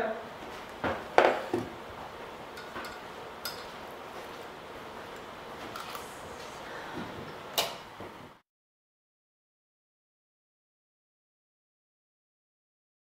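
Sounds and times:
kitchenware clicks and clinks: 2.6 - 3.8.

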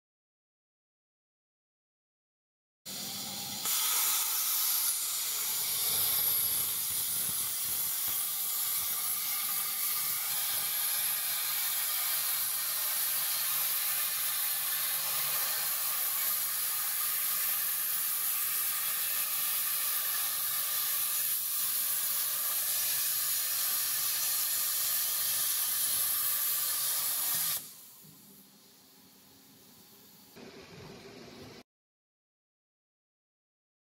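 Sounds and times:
plasma torch arc hissing: 2.9 - 28.2.

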